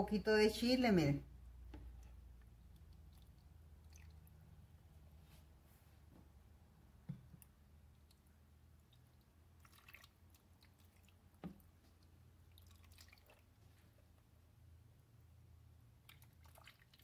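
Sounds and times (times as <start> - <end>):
low steady hum: 0.0 - 17.0
sauce dripping and squishing: 1.9 - 4.5, 7.4 - 13.6, 16.0 - 17.0.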